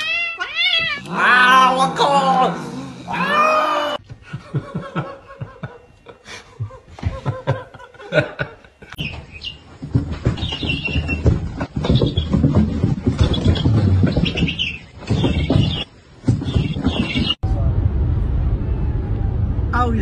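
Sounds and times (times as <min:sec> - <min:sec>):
cat meowing: 0:00.0 - 0:01.8
snickering laughter: 0:04.2 - 0:09.0.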